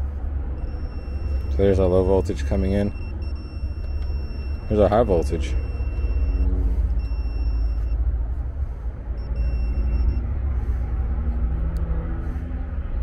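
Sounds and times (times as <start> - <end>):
steady low rumble: 0.0 - 13.0
voltage tester high beep: 0.6 - 8.0, 9.2 - 10.2.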